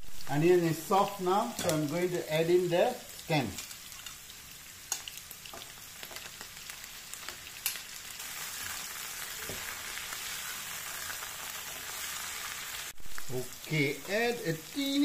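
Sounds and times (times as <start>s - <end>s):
vegetables sizzling in a wok: 0.0s - 15.0s.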